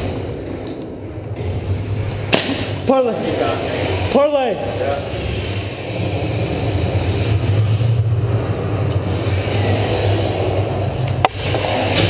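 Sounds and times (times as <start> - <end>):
low rumble: 0.0 - 12.0
sharp crack: 2.2 - 3.0.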